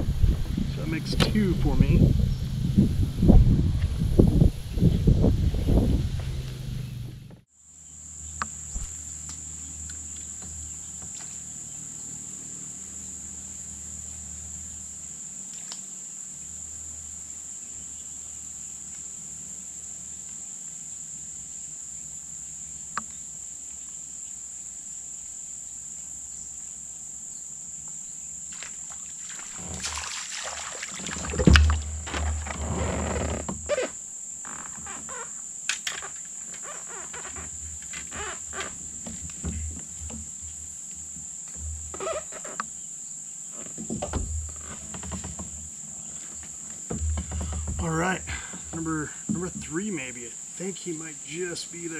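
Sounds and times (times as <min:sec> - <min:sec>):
insects droning: 0:00.0 - 0:51.9
knocks and rustling: 0:31.0 - 0:42.7, 0:43.5 - 0:50.1.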